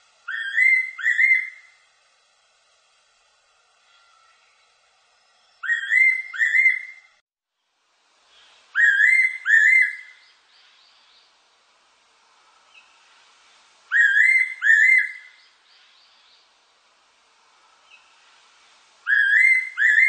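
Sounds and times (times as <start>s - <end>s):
bird singing rising whistles: 0.2s - 1.8s, 3.8s - 7.2s, 8.7s - 11.3s, 13.9s - 16.4s, 19.0s - 20.0s.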